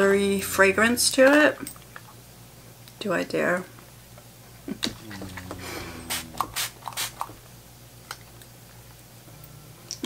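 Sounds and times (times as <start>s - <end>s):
person humming: 4.7s - 7.2s.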